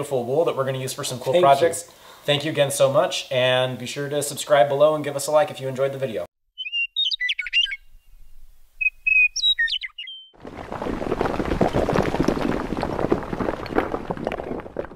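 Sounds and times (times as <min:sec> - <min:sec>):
birds chirping: 0:06.6 - 0:10.4
breaking stone and falling rubble: 0:10.4 - 0:14.9.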